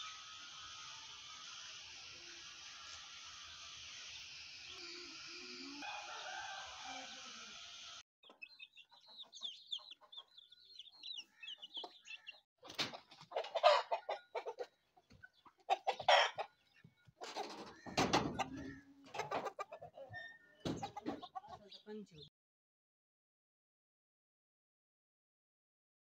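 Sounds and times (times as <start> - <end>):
chickens clucking: 3.3 - 22.3.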